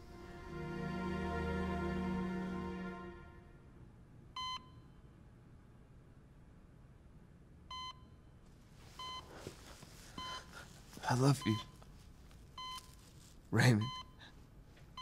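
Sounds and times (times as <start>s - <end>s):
heart monitor beeping: 9.0s - 9.5s, 10.2s - 10.6s, 11.4s - 11.9s, 12.6s - 13.1s, 13.8s - 14.2s.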